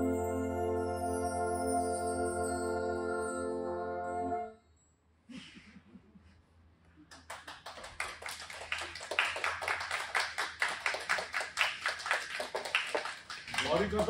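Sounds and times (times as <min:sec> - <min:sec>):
small group applauding: 0:07.0 - 0:14.0.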